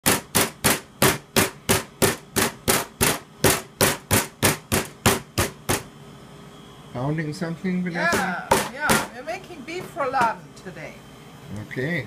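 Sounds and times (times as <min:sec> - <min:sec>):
mallet pounding meat: 0:00.0 - 0:05.9, 0:08.0 - 0:09.1.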